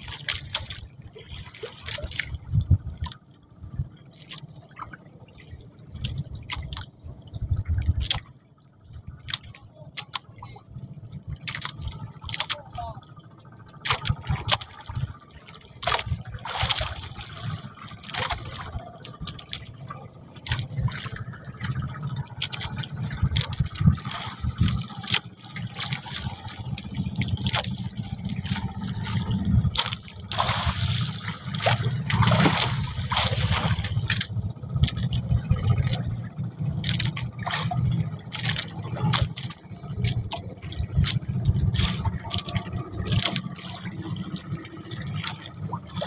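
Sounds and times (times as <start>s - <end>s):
knocks and clatters on boat: 0.0s - 46.0s
water splashing and trickling: 0.0s - 46.0s.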